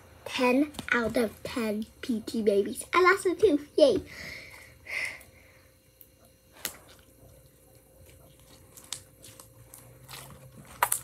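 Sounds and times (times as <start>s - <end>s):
slime squishing: 6.6s - 11.0s.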